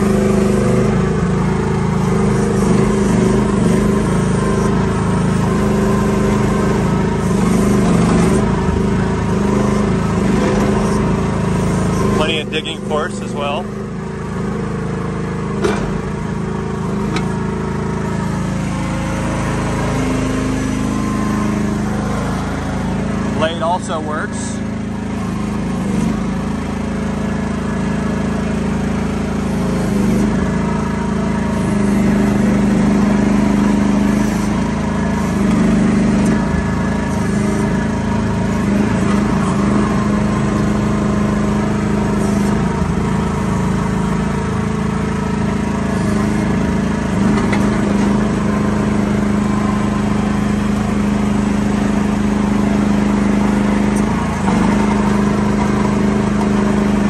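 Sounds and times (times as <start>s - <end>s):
excavator engine running: 0.0s - 57.0s.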